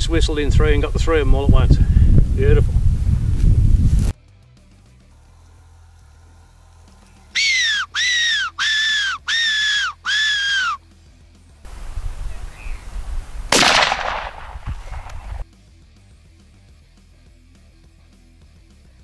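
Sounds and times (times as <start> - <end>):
predator whistle squealing calls: 7.4 - 10.8
loud bang: 13.5 - 15.4.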